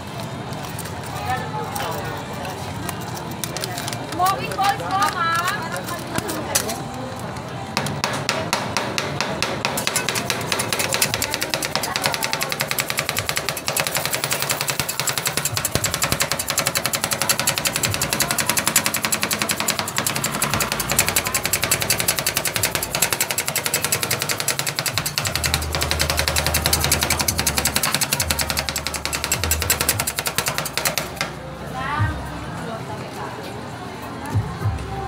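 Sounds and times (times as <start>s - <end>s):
metal spatulas chopping on steel: 7.8s - 31.4s.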